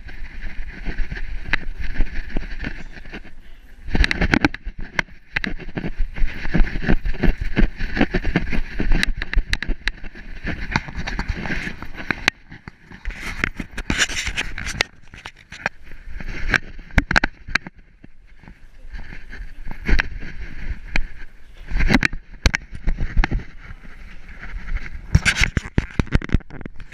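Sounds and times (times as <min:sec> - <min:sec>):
fur rubbing against camera: 0:00.0 - 0:26.9
camera knocks and rattles: 0:03.9 - 0:18.6, 0:21.8 - 0:26.9.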